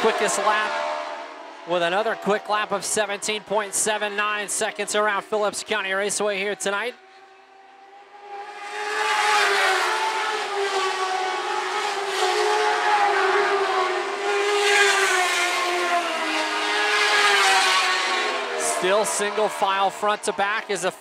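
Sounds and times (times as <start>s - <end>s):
racing car engines at high revs: 0.0s - 21.0s.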